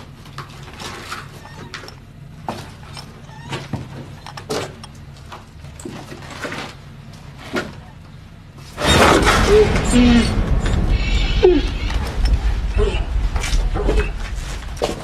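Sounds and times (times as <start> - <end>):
sudden loud noise burst: 8.8 - 15.0.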